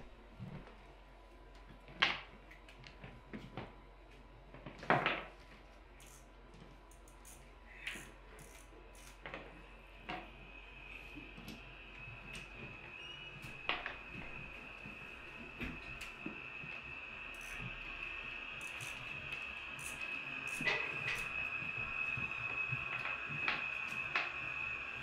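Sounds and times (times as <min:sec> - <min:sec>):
thin steady high tone: 0:07.1 - 0:25.0.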